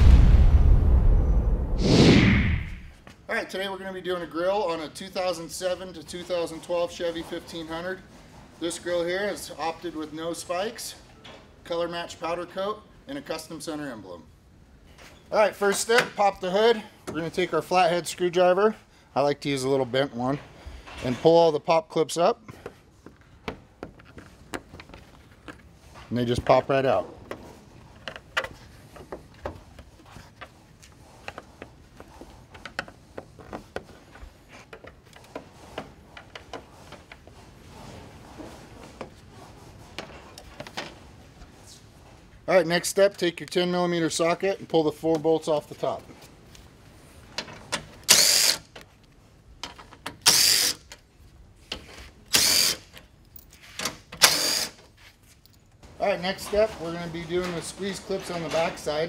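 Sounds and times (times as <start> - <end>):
impact driver whining: 54.2 - 54.8.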